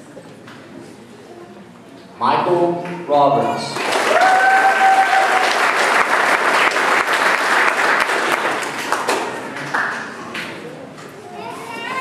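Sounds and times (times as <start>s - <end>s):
audience applauding: 3.7s - 10.4s.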